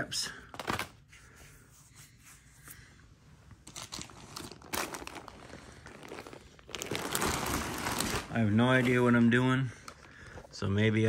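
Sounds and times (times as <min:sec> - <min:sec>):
synthetic fabric crinkling: 0:03.5 - 0:10.3.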